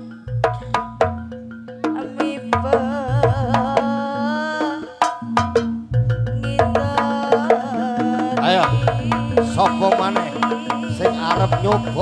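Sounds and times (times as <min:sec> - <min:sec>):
drum strokes: 0:00.0 - 0:12.0
wavering melody line: 0:00.0 - 0:12.0
steady low tone: 0:08.6 - 0:12.0.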